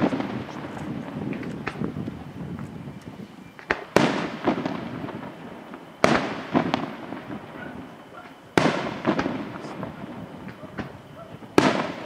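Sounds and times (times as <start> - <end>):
firework shells bursting: 0.0 - 12.0
small firework pops and cracks: 0.0 - 12.0.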